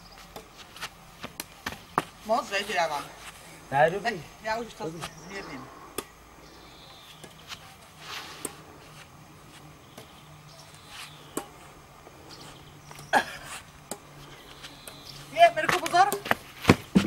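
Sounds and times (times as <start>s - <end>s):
rackets striking shuttlecock: 0.3s - 2.2s, 5.9s - 6.2s, 7.1s - 8.6s, 11.0s - 11.7s, 13.8s - 15.0s, 15.6s - 17.0s.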